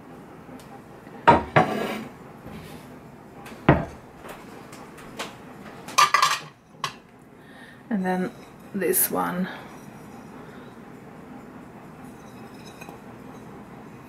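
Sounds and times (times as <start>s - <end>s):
ceramic dishes clinking: 12.1s - 13.0s.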